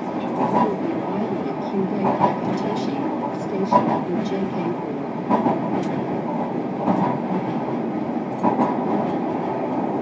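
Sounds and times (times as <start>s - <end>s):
train rolling rumble: 0.0s - 10.0s.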